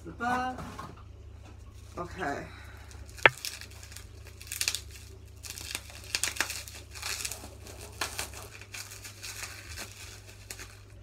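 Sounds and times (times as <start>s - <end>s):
wrapping crinkling and tearing: 2.8s - 11.0s.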